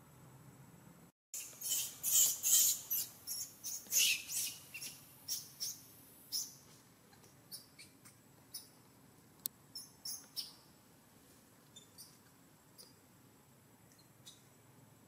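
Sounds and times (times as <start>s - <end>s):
young monkey squealing: 1.4s - 6.6s.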